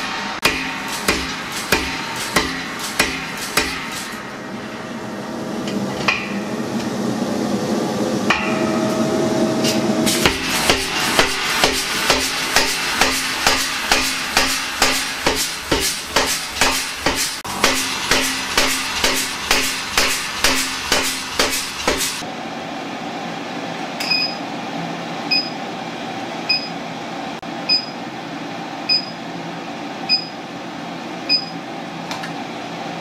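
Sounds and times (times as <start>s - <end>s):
power hammer striking steel: 0.0s - 4.3s, 8.3s - 22.2s.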